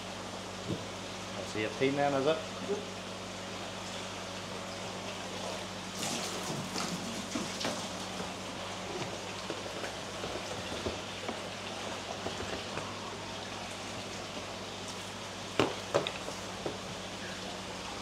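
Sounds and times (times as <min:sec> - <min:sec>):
low steady hum: 0:00.0 - 0:18.0
patter of falling water: 0:01.4 - 0:18.0
sharp knocks or splashes: 0:15.6 - 0:16.8.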